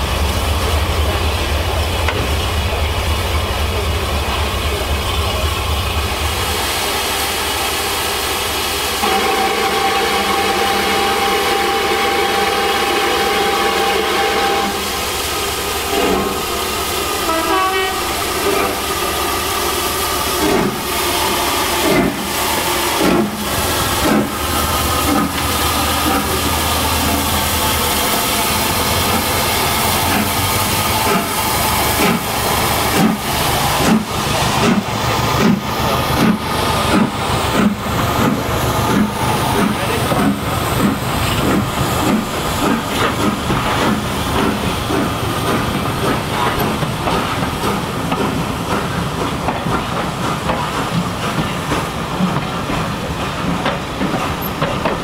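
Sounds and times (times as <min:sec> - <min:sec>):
deep engine rumble: 0:00.0 - 0:06.7, 0:17.9 - 0:46.8
steam hissing: 0:00.0 - 0:55.0
steam locomotive exhaust beats: 0:00.0 - 0:55.0
train whistle: 0:09.0 - 0:15.0, 0:17.1 - 0:18.8.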